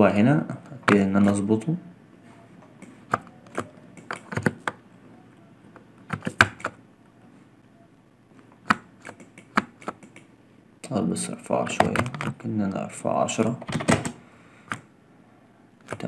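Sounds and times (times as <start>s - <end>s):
mouse and keyboard clicking: 2.7s - 4.8s, 6.1s - 6.8s, 8.6s - 10.3s.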